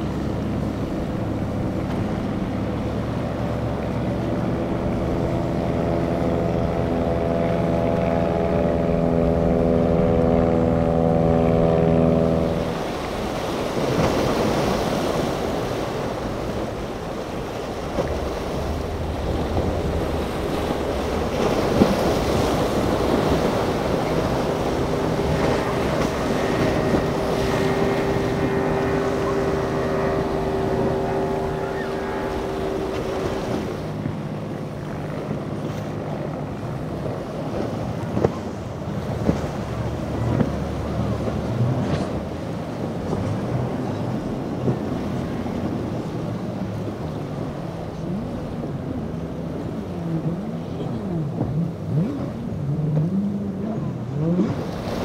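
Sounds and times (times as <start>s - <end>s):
hull slapping water: 0.0s - 55.0s
outboard engine drone: 0.0s - 55.0s
hull knocking on waves: 17.9s - 31.9s.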